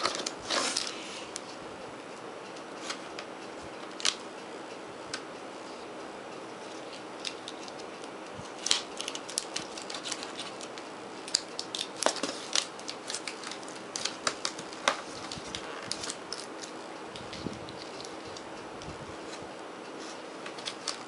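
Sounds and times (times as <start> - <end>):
packing tape peeling: 0.0 - 1.0, 6.8 - 18.5.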